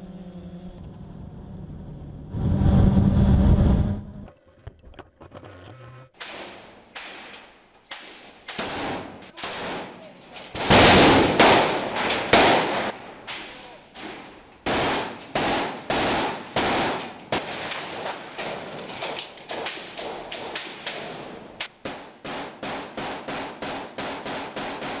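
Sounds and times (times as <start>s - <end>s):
echoing rifle gunfire: 10.6s - 13.6s, 14.6s - 25.0s.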